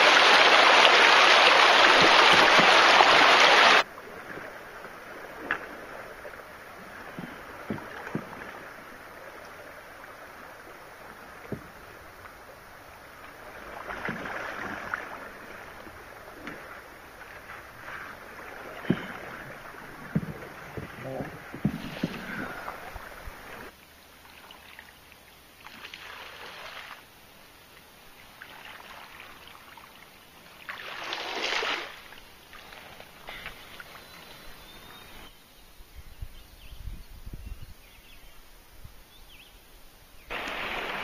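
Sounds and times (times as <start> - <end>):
water rushing over rocks: 0.0 - 23.7, 40.3 - 41.0
faint river water: 0.0 - 41.0
canoe pole knocks: 18.8 - 19.2, 20.1 - 22.6.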